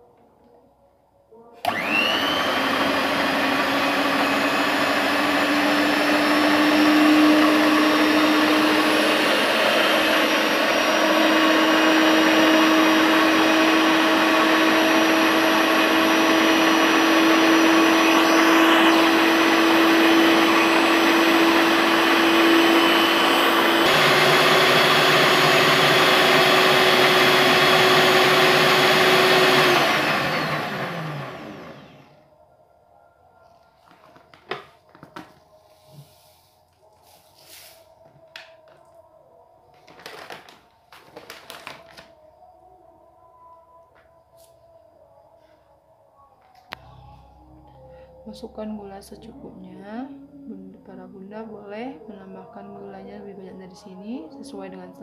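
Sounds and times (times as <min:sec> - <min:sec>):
electric stand mixer whining: 0:01.6 - 0:32.2.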